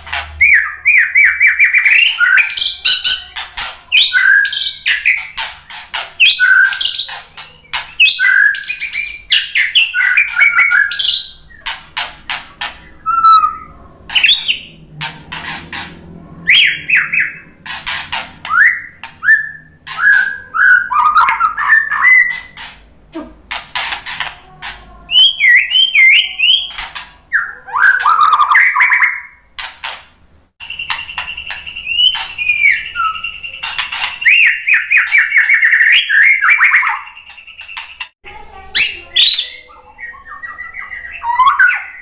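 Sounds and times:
bird singing whistled phrases: 0:00.4 - 0:05.4, 0:06.2 - 0:11.7, 0:12.8 - 0:14.8, 0:16.5 - 0:17.5, 0:18.5 - 0:22.6, 0:25.1 - 0:29.4, 0:30.6 - 0:38.1, 0:38.8 - 0:42.0.

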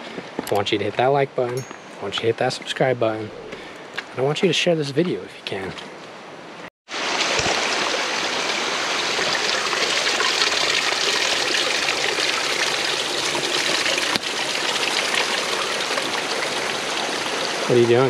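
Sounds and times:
stream rushing over rocks: 0:06.9 - 0:18.0.

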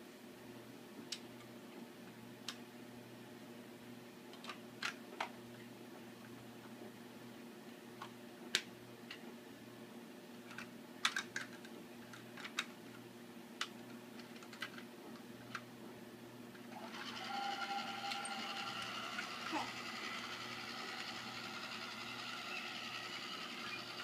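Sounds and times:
plastic toy train clicks: 0:10.5 - 0:12.7, 0:13.6 - 0:14.8
toy train motor whirring: 0:16.7 - 0:24.0.

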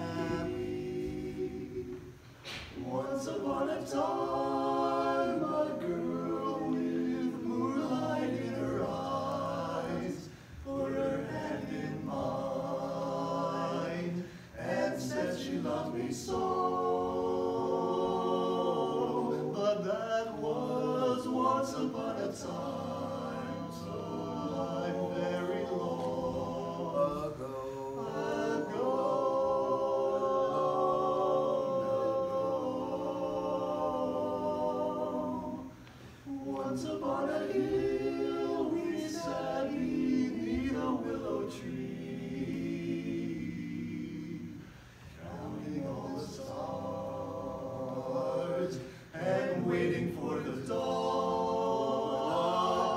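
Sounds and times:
male quartet singing a cappella: 0:00.0 - 0:52.9.

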